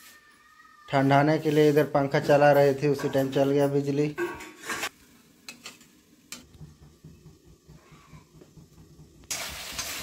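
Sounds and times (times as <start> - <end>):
steel kitchenware clicking and clinking: 1.4 - 4.9.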